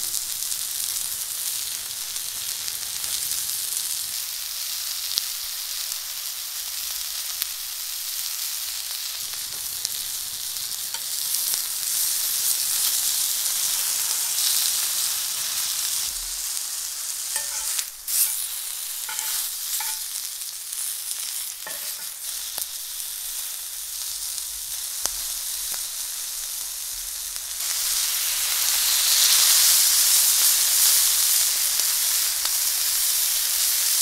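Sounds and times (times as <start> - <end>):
chicken sizzling in a pan: 0.0 - 34.0
tongs clicking: 17.4 - 18.5, 19.1 - 20.1, 21.7 - 22.2.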